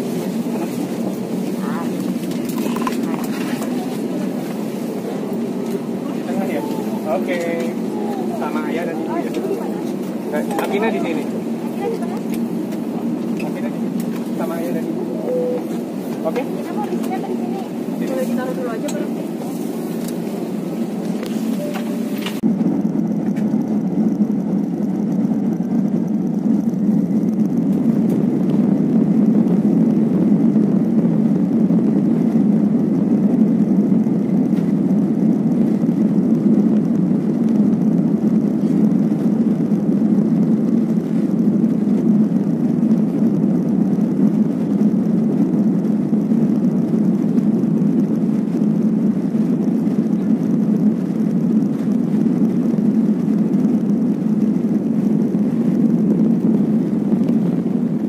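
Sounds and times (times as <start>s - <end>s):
jet engines low rumble: 0.0s - 58.0s.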